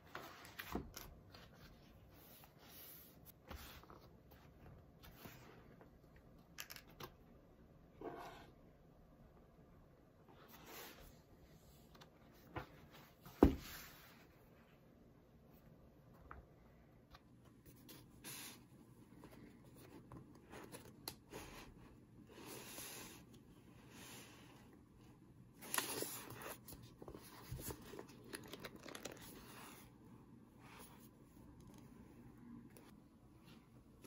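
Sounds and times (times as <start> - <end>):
paper rustling: 25.6 - 29.8.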